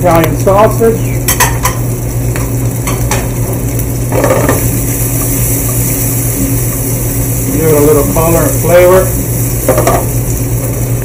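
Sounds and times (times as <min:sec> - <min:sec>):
low hum: 0:00.0 - 0:11.0
sausage sizzling in oil: 0:00.0 - 0:11.0.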